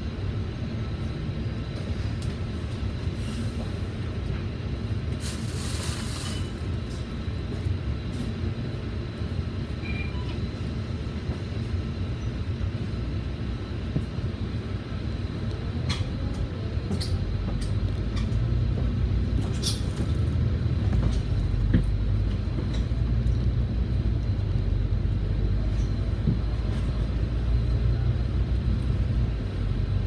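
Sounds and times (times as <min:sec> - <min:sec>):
bus diesel engine drone: 0:00.0 - 0:30.0.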